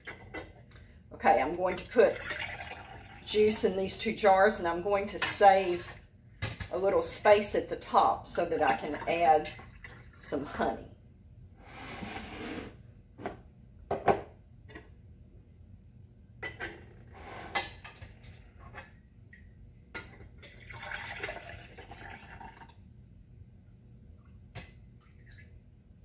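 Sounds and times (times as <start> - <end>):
liquid pouring into jar: 2.2 - 3.3, 20.4 - 22.8.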